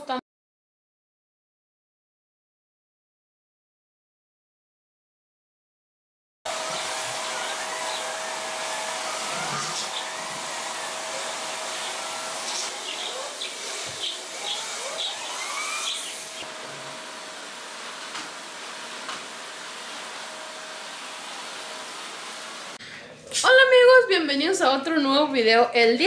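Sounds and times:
bird chirps: 0:11.7 - 0:16.2.

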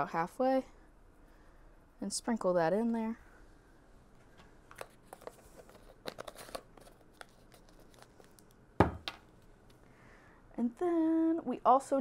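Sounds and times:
carton and teaspoon rustling: 0:04.7 - 0:08.5
carton knocking on wooden table: 0:08.8 - 0:09.2.

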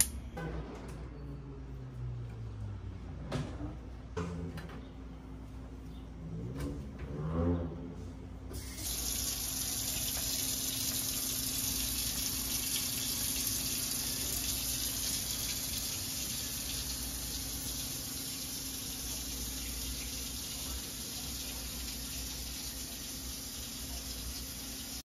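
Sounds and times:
faucet running into steel sink: 0:08.6 - 0:25.0.

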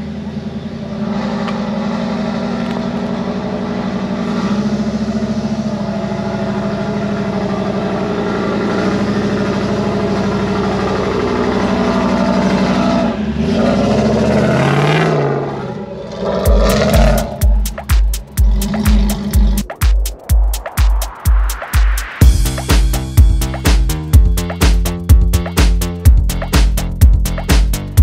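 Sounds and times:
off-road vehicle engine revving: 0:00.0 - 0:19.7.

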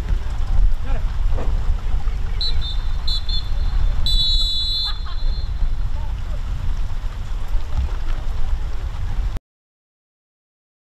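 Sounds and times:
wind rumble on microphone: 0:00.0 - 0:09.4
referee's whistle blast: 0:02.4 - 0:05.6.

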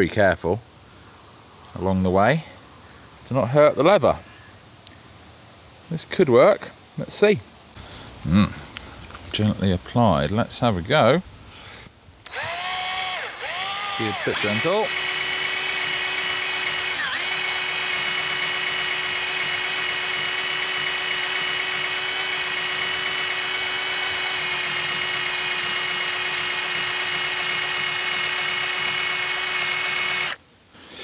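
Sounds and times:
drill motor whine: 0:12.3 - 0:30.4.

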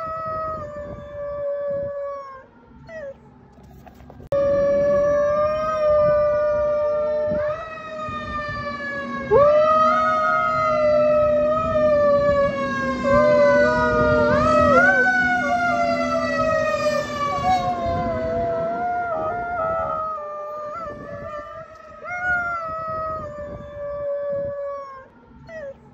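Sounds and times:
fire truck siren wailing: 0:00.0 - 0:25.9
dog howling: 0:13.0 - 0:15.8, 0:17.2 - 0:25.8.

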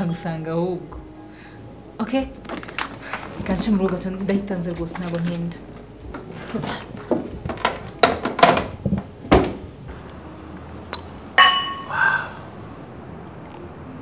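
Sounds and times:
sharp knocks and clatters: 0:07.0 - 0:09.6
glasses clinking: 0:11.4 - 0:12.0.

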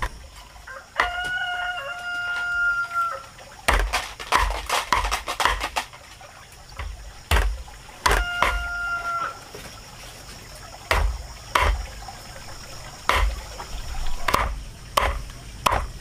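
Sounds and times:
rooster crowing: 0:00.6 - 0:03.4, 0:08.0 - 0:09.5
sharp knocks and thuds: 0:03.7 - 0:06.0, 0:06.7 - 0:08.7, 0:10.9 - 0:11.9, 0:13.0 - 0:13.6, 0:14.2 - 0:16.0.

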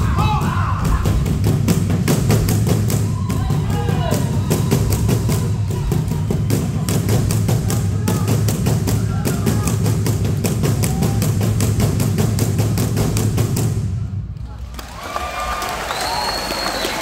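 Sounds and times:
drums beating fast rhythm: 0:00.0 - 0:14.2.

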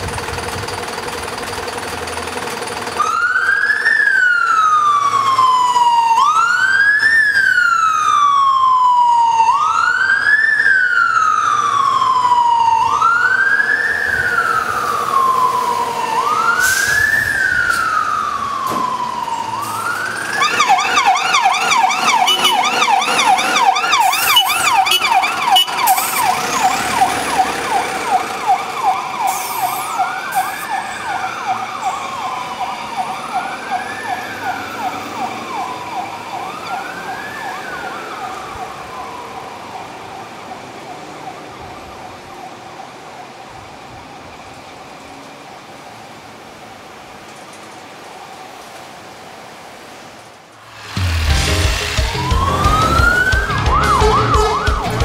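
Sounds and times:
siren fast yelp: 0:03.0 - 0:42.2, 0:52.0 - 0:55.0
electronic siren slow wail: 0:03.0 - 0:43.8, 0:50.8 - 0:55.0.

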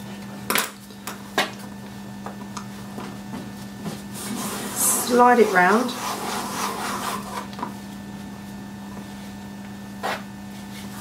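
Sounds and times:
steady low hum: 0:00.0 - 0:11.0
plastic cutter scraping on paste: 0:05.6 - 0:07.5.

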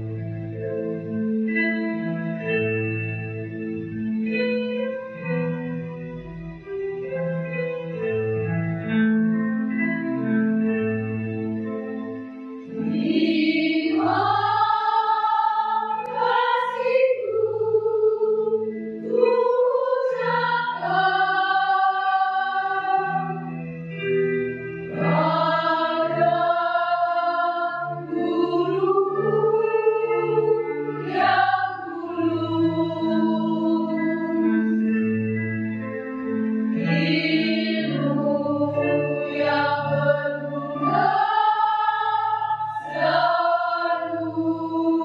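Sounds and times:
instrumental accompaniment: 0:00.0 - 0:45.0
women's choir singing: 0:12.8 - 0:23.6, 0:24.9 - 0:34.7, 0:36.8 - 0:45.0.

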